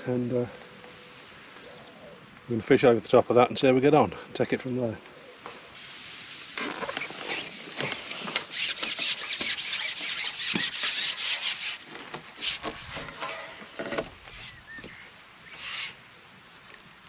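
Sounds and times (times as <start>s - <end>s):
fishing pole rasping through hands: 6.6s - 13.7s, 15.6s - 16.0s.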